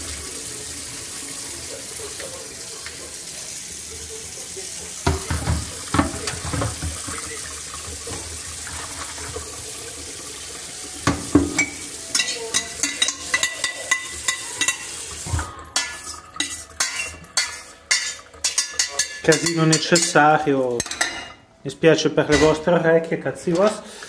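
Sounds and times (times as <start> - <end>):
tap water running into sink: 0.0 - 21.0
metal scraping steel pot: 11.6 - 21.4.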